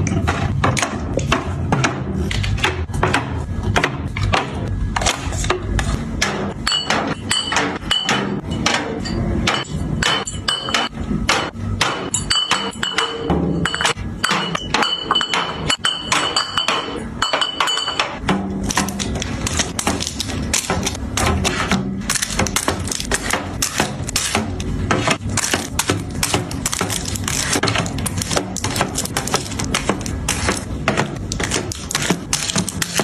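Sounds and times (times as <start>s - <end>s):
glass bottles clinking: 6.6s - 11.0s, 12.1s - 18.2s.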